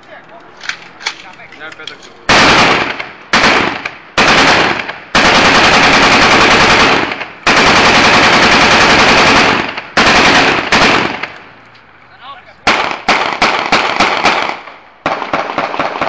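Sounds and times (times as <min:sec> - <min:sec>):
automatic gunfire bursts: 0:02.3 - 0:11.4, 0:12.7 - 0:16.0.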